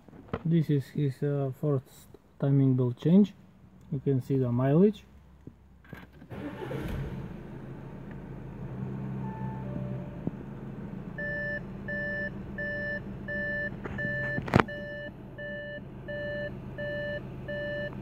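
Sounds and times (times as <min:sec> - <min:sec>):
diesel engine idling: 0:06.4 - 0:18.0
car warning chime beeping: 0:09.2 - 0:10.3, 0:11.2 - 0:18.0.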